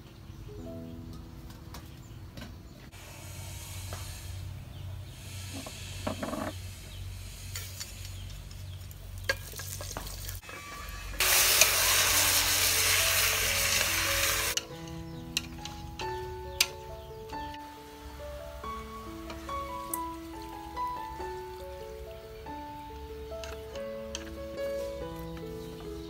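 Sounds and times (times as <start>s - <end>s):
faint background music: 0.0s - 2.9s, 10.4s - 26.0s
chicken sizzling in a pot: 5.2s - 14.6s.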